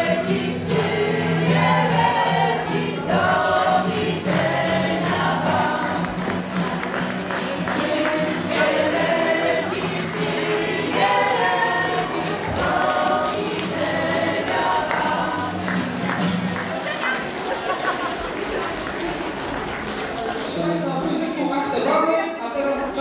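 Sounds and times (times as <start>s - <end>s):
jingling percussion: 0.0s - 16.9s, 18.0s - 21.0s
instrumental accompaniment: 0.0s - 17.5s
group singing folk song: 0.0s - 20.3s.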